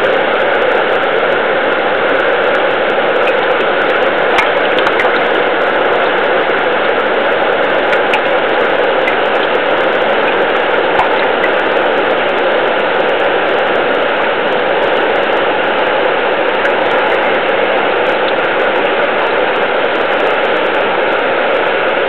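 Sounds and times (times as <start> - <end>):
underwater river rushing: 0.0 - 22.0
faint ticks and clicks: 3.2 - 6.1.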